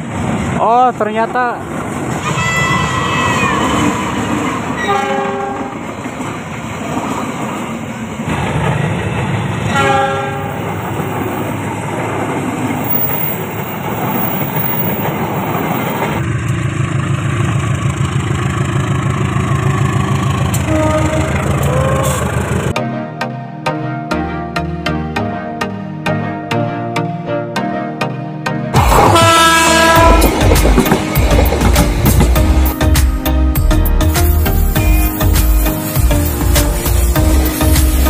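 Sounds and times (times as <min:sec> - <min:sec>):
train rumbling past: 0:00.0 - 0:22.8, 0:28.7 - 0:38.0
train horn blasts: 0:02.2 - 0:05.8, 0:09.7 - 0:10.6, 0:20.3 - 0:22.5, 0:28.8 - 0:30.9.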